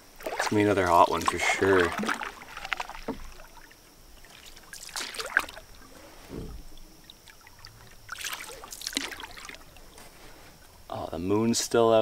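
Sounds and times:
paddle strokes in water: 0.0 - 10.6
water dripping: 0.2 - 5.9, 6.7 - 10.0.

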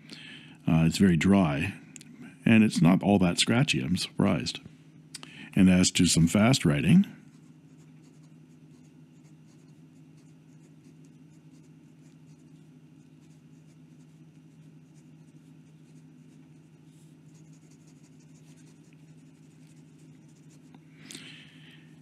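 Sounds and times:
steady low hum: 0.0 - 22.0
pen scratching on paper: 7.3 - 20.7.

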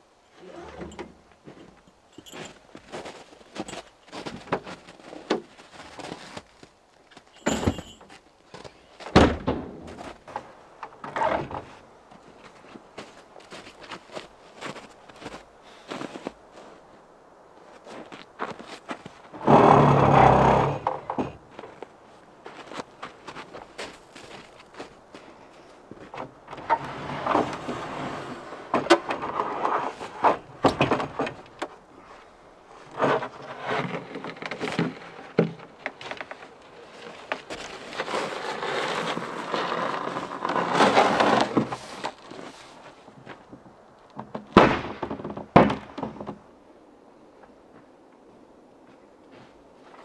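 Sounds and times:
wooden cabinet scraping and rubbing: 26.5 - 31.4
sharp wooden knocks: 44.2 - 46.4.

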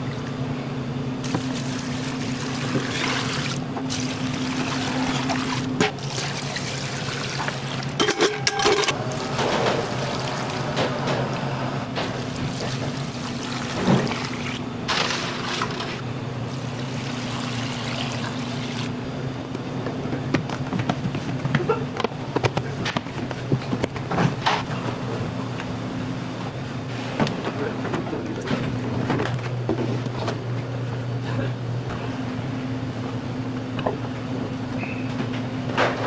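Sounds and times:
pots and containers clattering: 8.0 - 9.8.

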